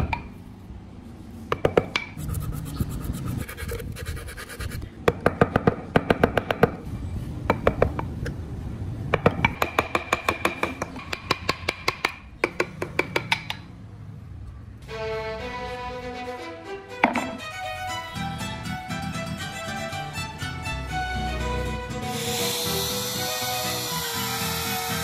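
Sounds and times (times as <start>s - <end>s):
carving tool scratching wood: 2.2s - 4.8s, 22.1s - 25.0s.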